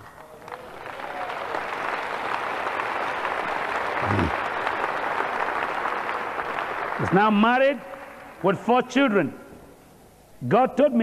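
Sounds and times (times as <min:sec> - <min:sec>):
large audience applauding: 0:00.0 - 0:08.4
person calling out: 0:04.0 - 0:04.3.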